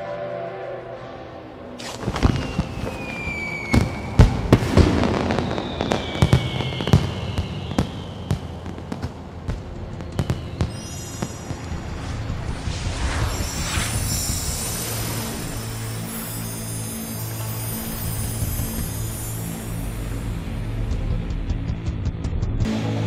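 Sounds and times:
rocket whistles: 1.8s - 20.3s
firework bangs and crackles: 1.8s - 21.3s
high glittering shimmer: 10.3s - 20.9s.

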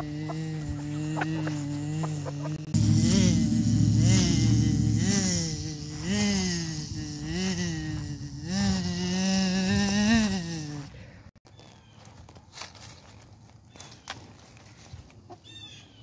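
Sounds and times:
fly-like buzzing: 0.0s - 10.9s.

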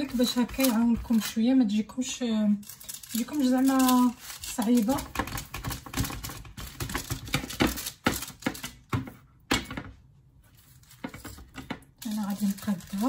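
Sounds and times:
hands patting dough on tray: 3.4s - 10.0s.

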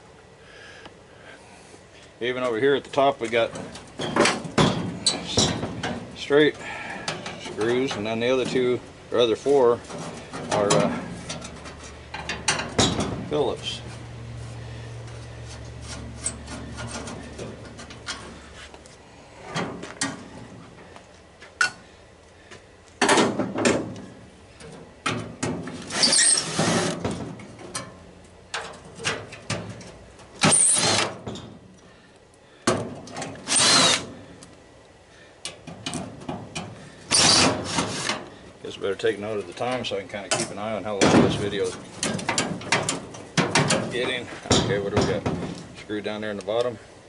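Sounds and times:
cordless drill backing out screws: 30.4s - 31.2s, 33.2s - 34.1s, 37.1s - 38.2s.

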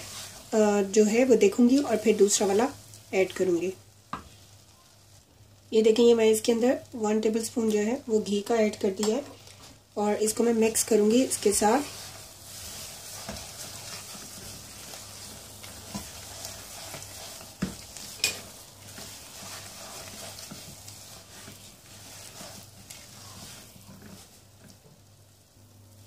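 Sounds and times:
spatula scraping a pan: 0.0s - 0.6s, 10.3s - 24.9s
ghee sizzling: 0.0s - 26.0s.

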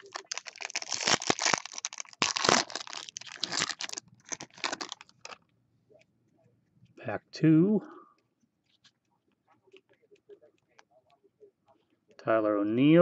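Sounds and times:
foil wrapper tearing and crinkling: 0.0s - 5.4s.

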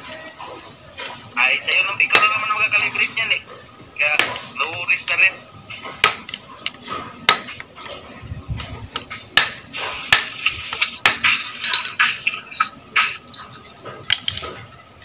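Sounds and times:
hammer striking metal: 7.2s - 7.6s, 8.9s - 12.2s.

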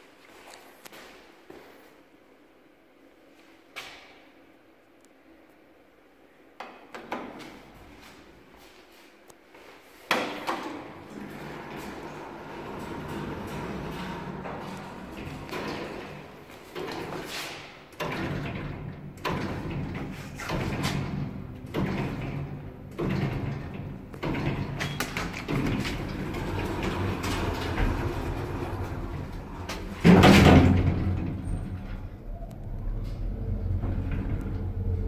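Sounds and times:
lift doors closing with a bang: 10.1s - 35.0s
low rumble of lift drive: 11.1s - 35.0s.

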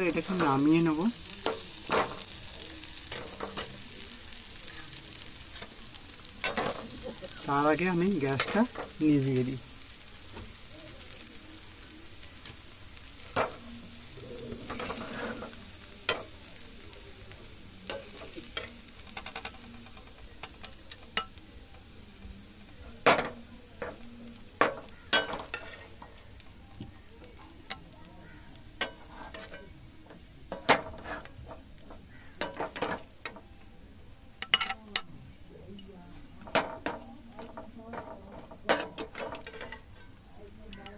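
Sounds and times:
food sizzling: 0.0s - 40.9s
spatula scraping metal pan: 14.6s - 16.2s, 30.6s - 31.4s, 37.9s - 40.2s
spatula clinking on pan and plate: 24.6s - 26.1s, 34.4s - 35.1s, 36.4s - 40.9s.

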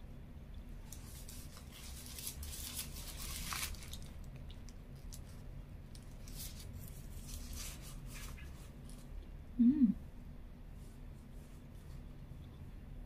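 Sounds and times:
paper wrapper rustling: 0.8s - 9.1s.

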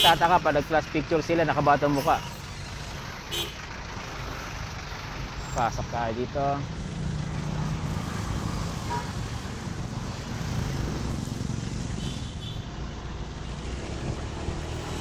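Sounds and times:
road and wind noise: 0.0s - 15.0s.

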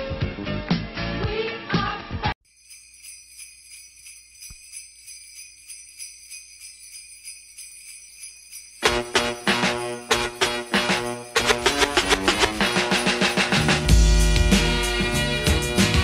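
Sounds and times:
sleigh bells jingling: 2.4s - 16.0s
band playing with strong beat: 8.8s - 16.0s.

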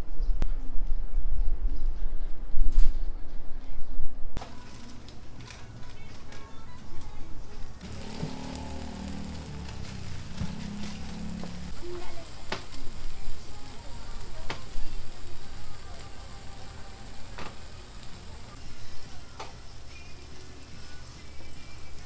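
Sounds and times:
eggs and bacon sizzling on griddle: 4.4s - 6.4s, 7.8s - 22.0s.

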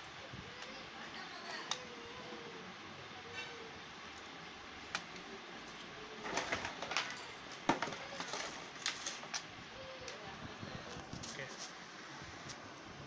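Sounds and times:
toy and box handling noise: 5.7s - 10.2s.

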